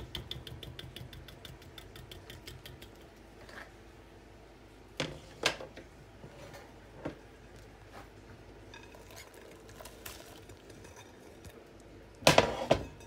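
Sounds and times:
utensil knocking metal bowl: 0.0 - 3.0.

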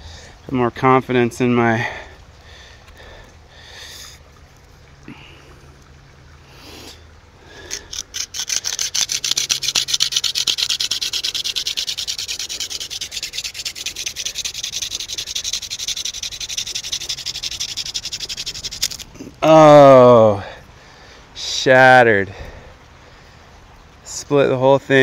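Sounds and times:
wooden spindle rasping in socket: 7.7 - 19.1.

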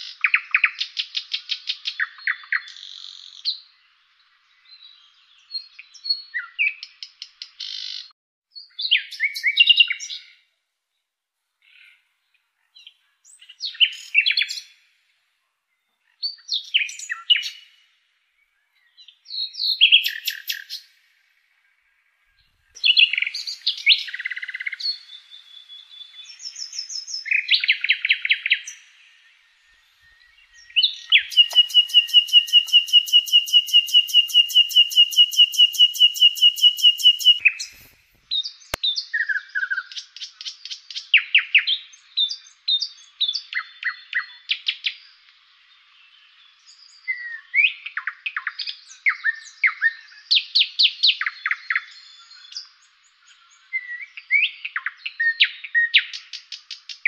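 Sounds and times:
songbirds singing: 0.0 - 11.0, 11.6 - 57.0
fast bird trill: 30.5 - 37.9.

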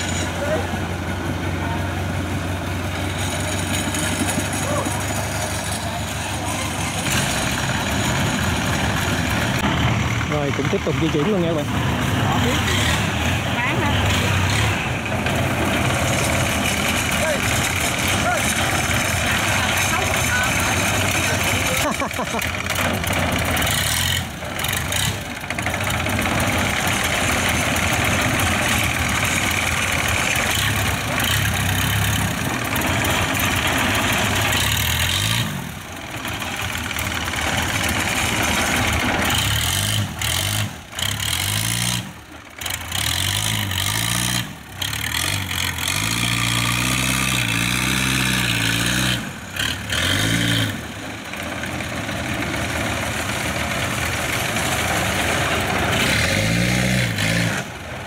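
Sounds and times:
combine harvester diesel engine: 0.0 - 58.0.

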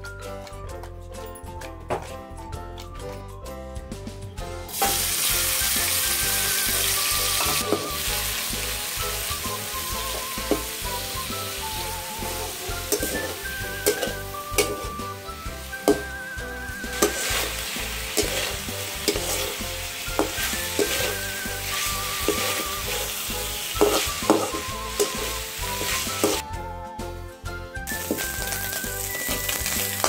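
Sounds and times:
shrimp sizzling in oil: 4.7 - 26.4, 27.9 - 30.0
metal spatula scraping a pan: 7.3 - 8.7, 11.9 - 15.1, 16.8 - 26.4.

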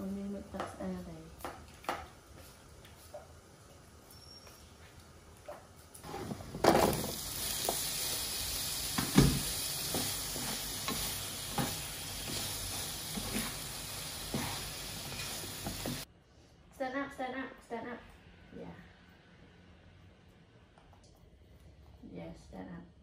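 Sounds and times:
potatoes sizzling in a frying pan: 0.0 - 16.1
spatula scraping and knocking pan: 8.9 - 16.1.

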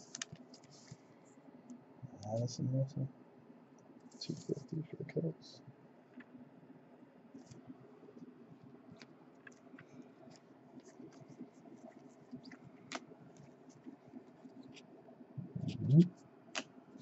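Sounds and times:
cards flipping clicks and scraping: 0.1 - 1.0, 9.0 - 13.5.

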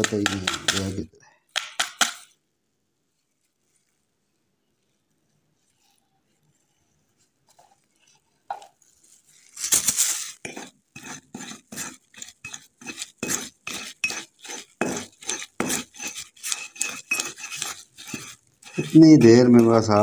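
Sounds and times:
tool scraping paste in metal bowl: 0.0 - 1.0, 9.8 - 20.0.

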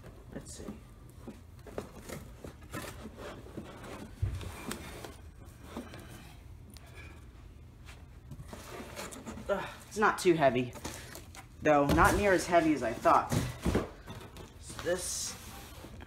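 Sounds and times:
cardboard box rustling and scraping: 1.4 - 6.2, 8.2 - 9.5, 14.7 - 16.0.

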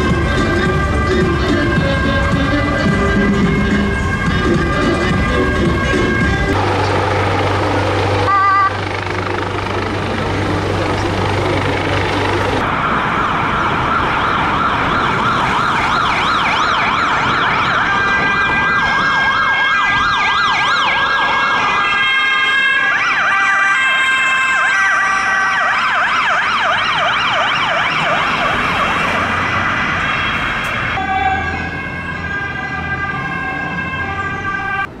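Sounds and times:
stepped siren tone: 0.0 - 7.3
siren wailing: 0.0 - 35.0.

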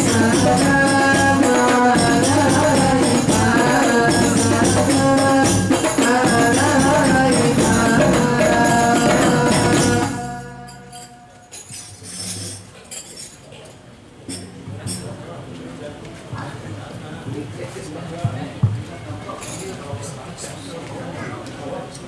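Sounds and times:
group singing: 0.0 - 11.5
frame drum ensemble playing: 0.0 - 12.7.

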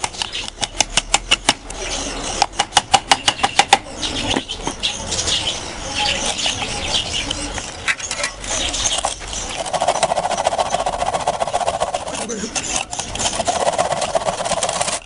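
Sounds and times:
handling noise: 7.3 - 15.0
hand saw cutting: 9.5 - 15.0.

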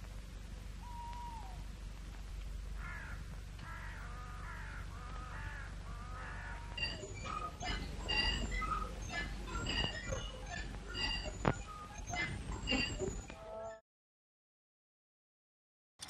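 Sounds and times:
film soundtrack hum and hiss: 0.0 - 13.7
short animal calls: 0.8 - 1.6.

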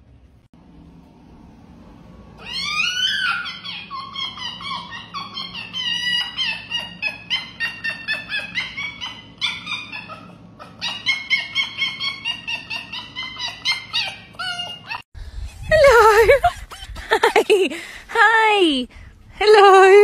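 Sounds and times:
fox whining yips: 2.4 - 17.0.

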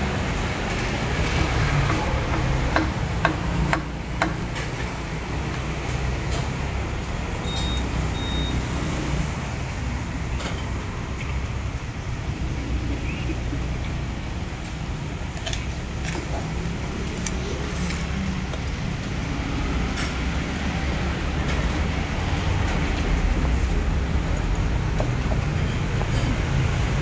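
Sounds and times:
road traffic rumble: 0.0 - 27.0
short high beeps: 7.4 - 8.7.

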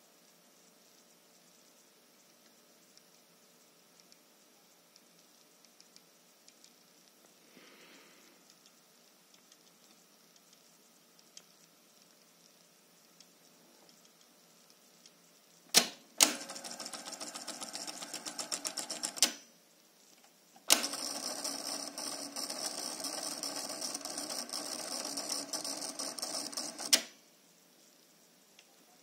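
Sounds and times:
reel drive whirring: 15.7 - 19.4, 20.6 - 27.2
tape deck clicks: 15.7 - 19.4, 20.6 - 27.2.

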